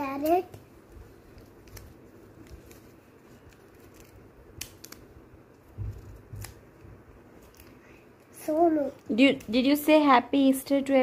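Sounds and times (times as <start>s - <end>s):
scissors snipping paper: 1.3s - 5.2s, 5.9s - 6.6s.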